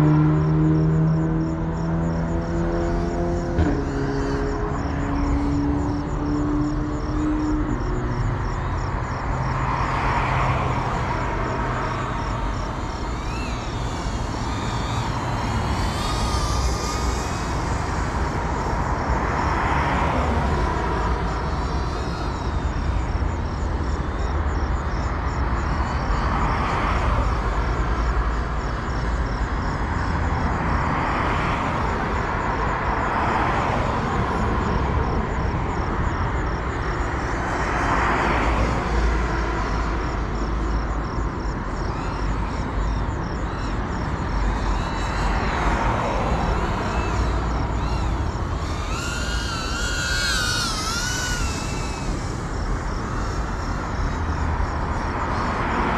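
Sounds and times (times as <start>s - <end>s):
drone propeller buzzing: 0.0s - 24.2s, 41.8s - 55.9s.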